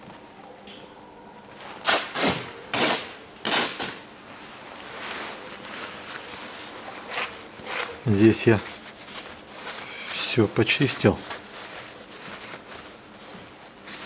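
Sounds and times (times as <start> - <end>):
cloth or plastic rustling: 4.4 - 14.0.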